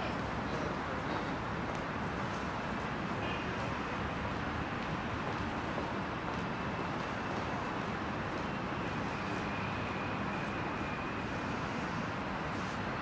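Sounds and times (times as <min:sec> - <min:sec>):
road traffic hum: 0:00.0 - 0:13.0
faint high whine: 0:06.6 - 0:13.0.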